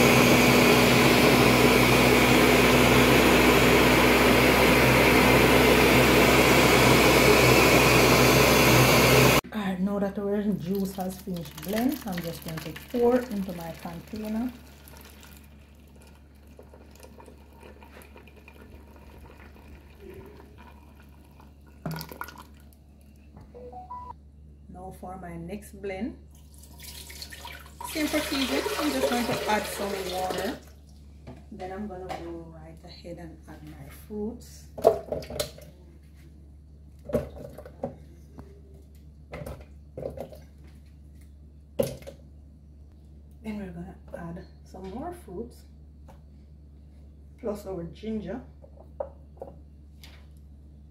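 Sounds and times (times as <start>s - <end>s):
juice pouring into metal pot: 10.6s - 22.8s, 26.4s - 30.6s.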